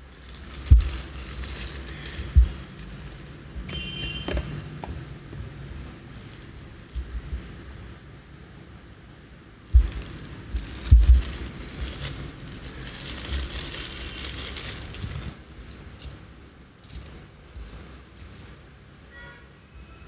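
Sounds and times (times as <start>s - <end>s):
plastic bricks rattling: 0.0s - 3.3s, 9.8s - 16.2s
plastic bag crinkling: 0.0s - 4.6s, 9.8s - 16.2s.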